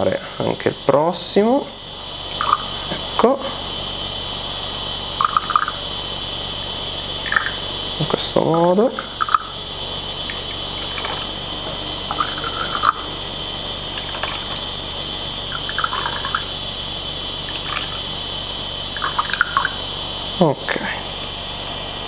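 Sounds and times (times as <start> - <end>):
high-pitched whine: 0.0 - 22.0
tea trickling into cups: 2.4 - 2.8, 5.2 - 5.8, 6.6 - 8.2, 8.8 - 9.6, 10.2 - 11.5, 12.1 - 13.0, 13.6 - 14.7, 15.4 - 16.6, 17.4 - 18.2, 18.9 - 19.8.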